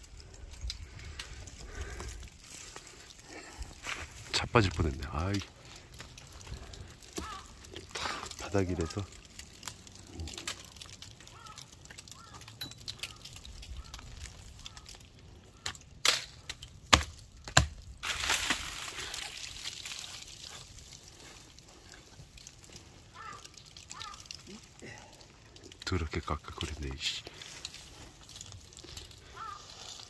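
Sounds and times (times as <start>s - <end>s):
dry branches rustling: 0.0s - 30.0s
footsteps crunching through leaves and snow: 0.8s - 7.5s, 18.0s - 22.6s
sharp cracks: 6.0s - 19.9s.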